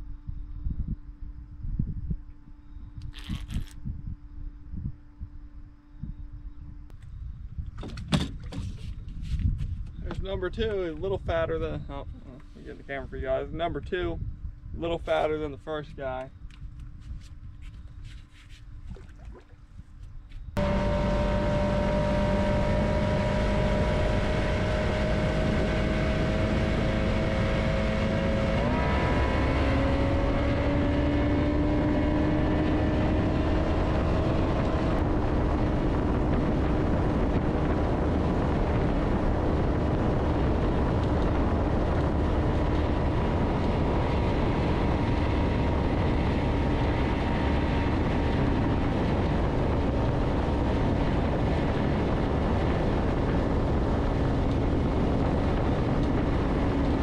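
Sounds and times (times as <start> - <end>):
outboard motor running: 20.6 - 26.6.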